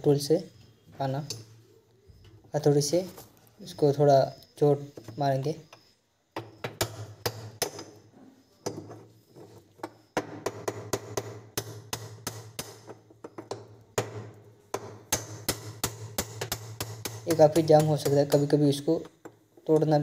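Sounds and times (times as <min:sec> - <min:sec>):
hammer striking metal spanner: 0:09.8 - 0:20.0.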